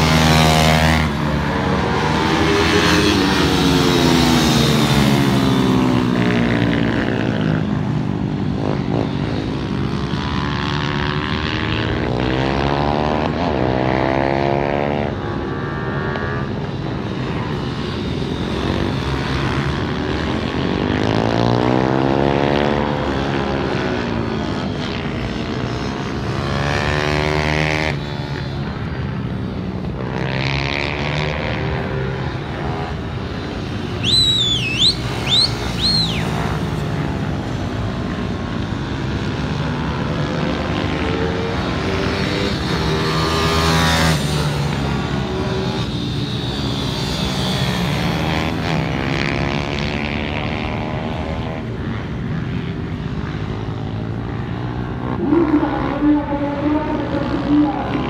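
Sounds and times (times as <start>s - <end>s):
pit bike engines racing: 0.0s - 58.0s
high whistling notes: 34.0s - 36.4s.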